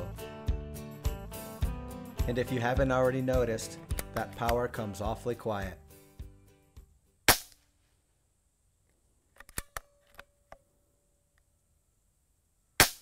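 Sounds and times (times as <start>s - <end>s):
air pistol shot: 7.3s - 7.6s, 12.8s - 13.0s
metallic bolt clicks: 9.4s - 10.6s.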